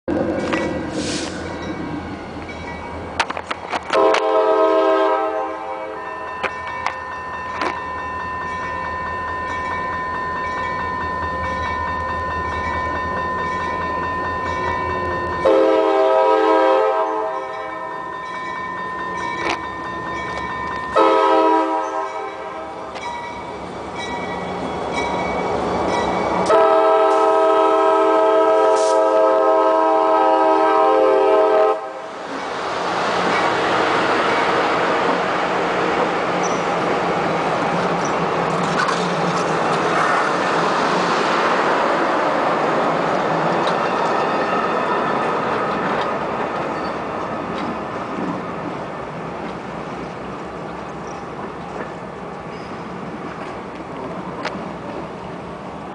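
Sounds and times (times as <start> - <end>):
train wheels rushing on rails: 0.1 - 55.9
locomotive air horn blasts: 3.9 - 6.1, 15.4 - 17.6, 21.0 - 22.8, 26.5 - 32.1.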